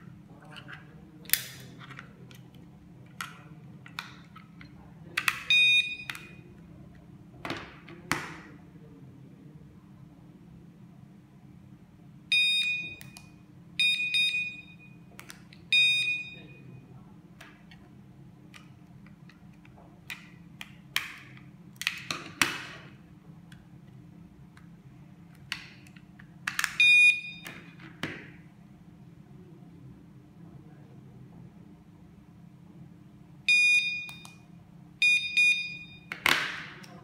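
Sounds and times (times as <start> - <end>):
door alarm beeping: 5.4 - 6.4, 12.3 - 13.2, 13.8 - 15.1, 15.7 - 16.8, 26.8 - 27.7, 33.5 - 34.4, 35.0 - 36.2.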